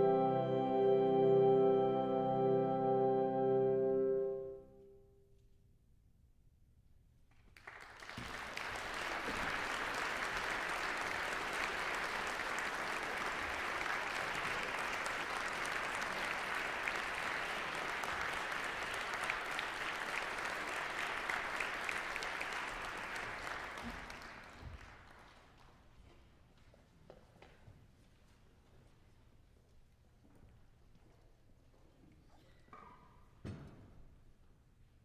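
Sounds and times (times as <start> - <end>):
audience applauding: 7.6 - 25.7.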